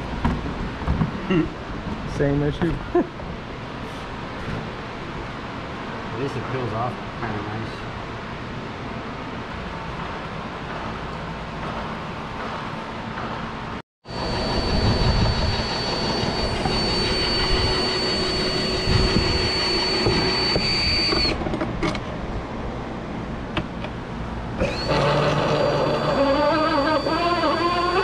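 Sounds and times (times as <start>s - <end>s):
electric motor whining: 14.1s - 21.4s, 24.6s - 28.0s
rushing noise: 14.1s - 21.4s.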